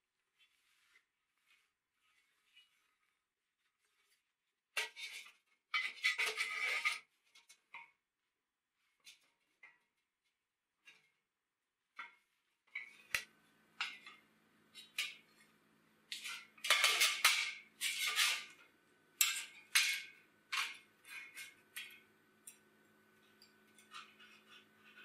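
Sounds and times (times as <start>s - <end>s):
steel scraping on metal slats: 16.2s - 18.6s.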